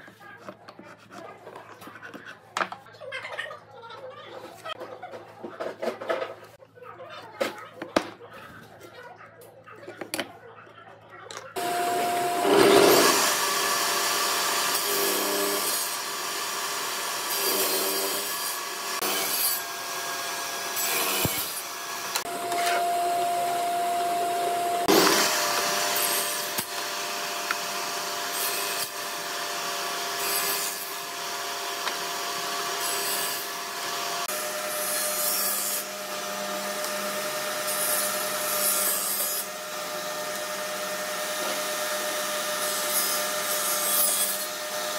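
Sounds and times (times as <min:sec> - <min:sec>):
table saw cutting wood: 0:11.6 - 0:44.9.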